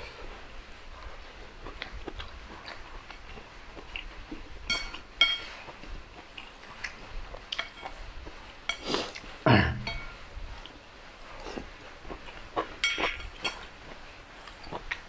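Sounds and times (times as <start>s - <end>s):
mouth sound of eating: 0.0s - 15.0s
metal spoon clinking against bowl: 4.7s - 5.5s, 9.8s - 10.2s, 12.8s - 13.7s.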